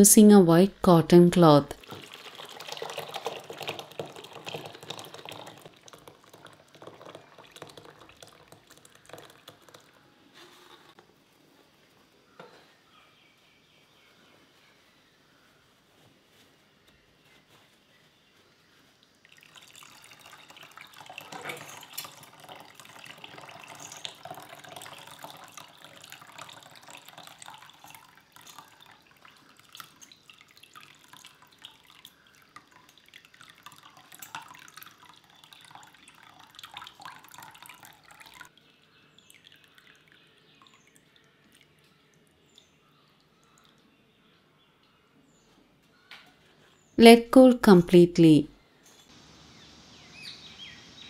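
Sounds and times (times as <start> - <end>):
water running and dripping into pot: 1.8 - 10.0, 19.0 - 43.9.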